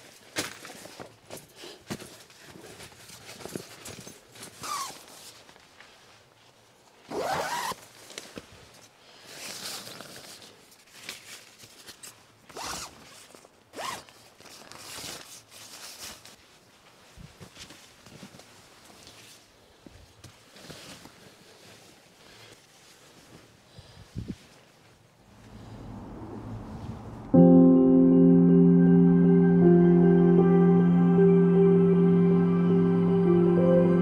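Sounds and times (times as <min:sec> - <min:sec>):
fabric rustling: 0:00.0 - 0:25.8
zipper being pulled: 0:04.6 - 0:05.1, 0:07.1 - 0:07.8, 0:09.3 - 0:10.5, 0:12.5 - 0:13.2, 0:13.8 - 0:15.3.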